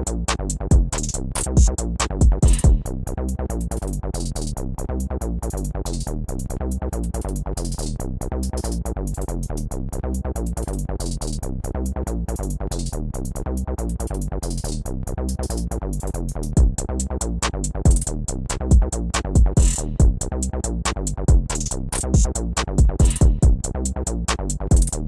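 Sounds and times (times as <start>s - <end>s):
electronic music with drum-machine beat: 0.0s - 2.9s, 16.5s - 20.3s, 21.0s - 25.0s.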